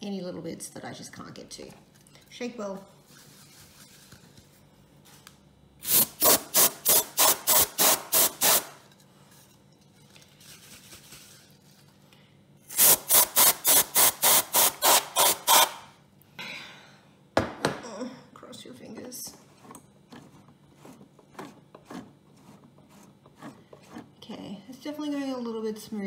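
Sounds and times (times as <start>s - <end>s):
compressed air blasts: 5.8s - 8.8s, 12.7s - 15.9s.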